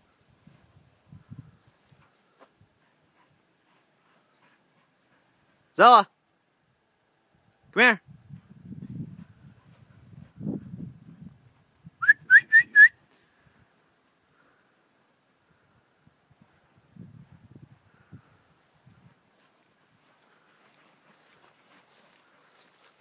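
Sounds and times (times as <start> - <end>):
person whistling rising notes: 12.0 - 13.0.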